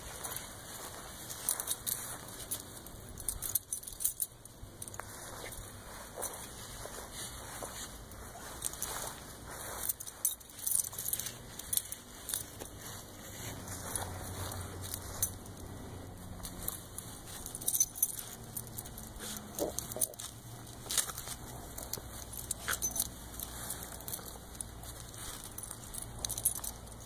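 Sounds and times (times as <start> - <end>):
grass rustling: 0.0 - 27.0
metal collar tags jingling: 0.0 - 27.0.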